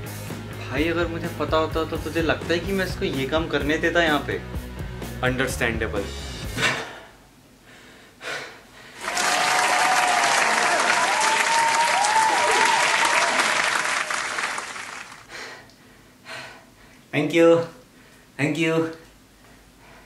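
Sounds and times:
crowd applauding: 9.0 - 15.3.

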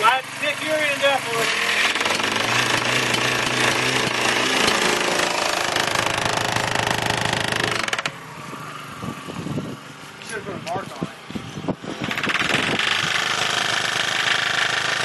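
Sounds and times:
boring tool hammering rattle: 12.0 - 15.0.

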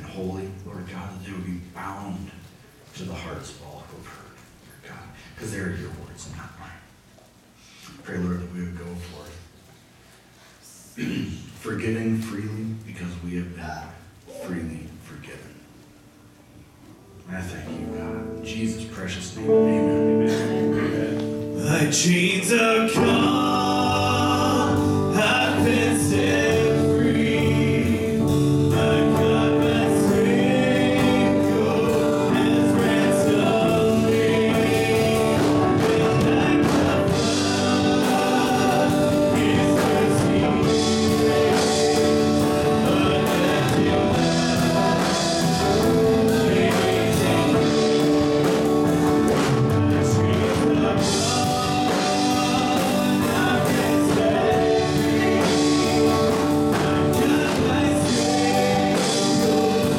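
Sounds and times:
worship band playing: 17.0 - 59.9
man and woman singing: 19.4 - 59.9.

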